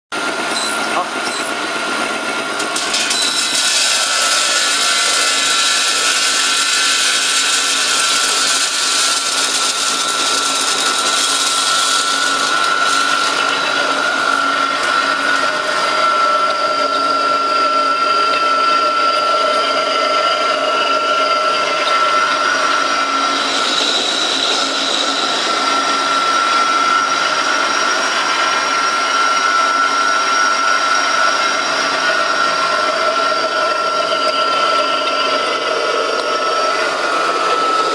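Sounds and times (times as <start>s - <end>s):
grinding mill motor whine: 0.2s - 37.9s.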